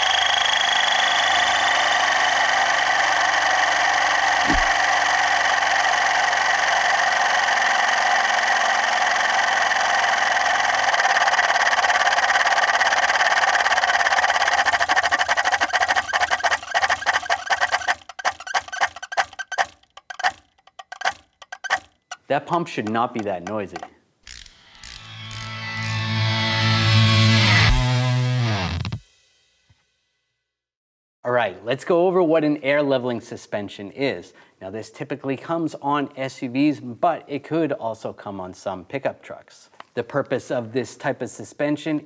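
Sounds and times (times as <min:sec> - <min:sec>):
air compressor buzzing: 0:00.0 - 0:26.0.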